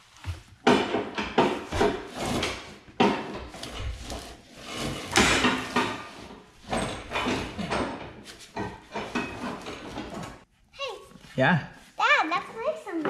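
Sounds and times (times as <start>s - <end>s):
scraping and rubbing strokes: 3.4s - 7.5s.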